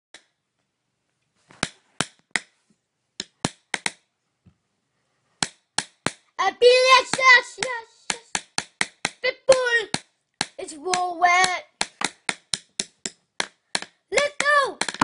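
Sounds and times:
pencil tapping: 3.2 - 4.1, 5.4 - 15.0
child singing: 6.4 - 8.3.

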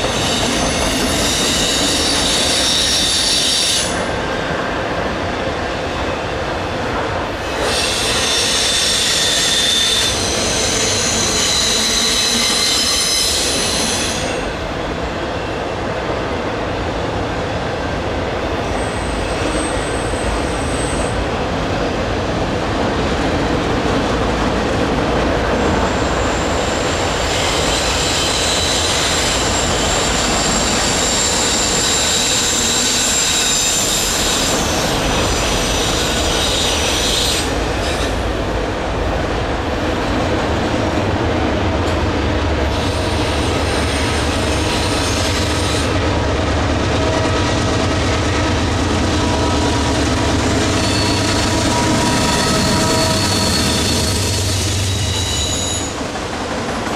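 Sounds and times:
diesel locomotive engine drone: 0.0 - 56.9
wheel flanges squealing: 50.5 - 56.0.

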